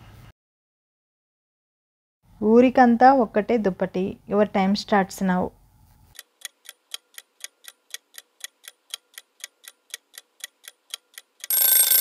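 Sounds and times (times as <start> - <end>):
clock ticking: 6.2 - 12.0
loud ringing bell: 11.5 - 12.0.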